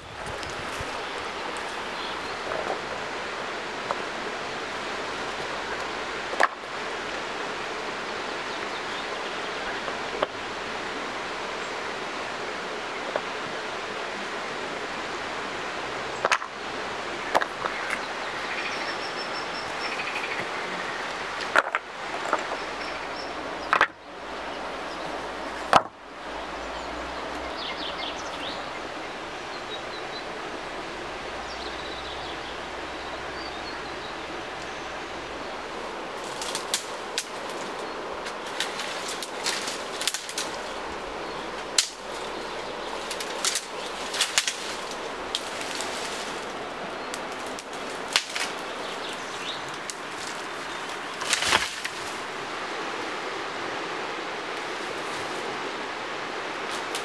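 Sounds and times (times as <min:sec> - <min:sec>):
dry branches cracking: 0:00.0 - 0:02.8, 0:36.2 - 0:52.3, 0:56.7 - 0:57.0
river water rushing: 0:00.0 - 0:57.0.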